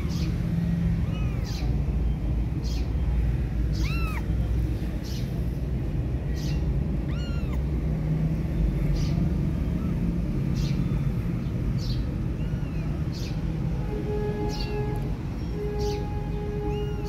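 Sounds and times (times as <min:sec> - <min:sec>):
kitten mewing: 0:01.0 - 0:01.8, 0:03.8 - 0:04.3, 0:07.0 - 0:07.7.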